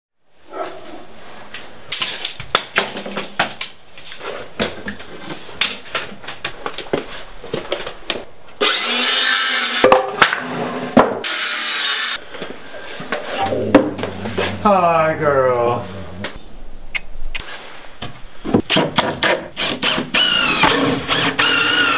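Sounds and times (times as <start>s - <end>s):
knocks and clicks of tools and boards: 4.5s - 8.6s, 9.8s - 11.6s, 16.2s - 21.6s
circular saw cutting wood: 8.6s - 9.9s, 10.5s - 12.2s, 19.6s - 21.9s.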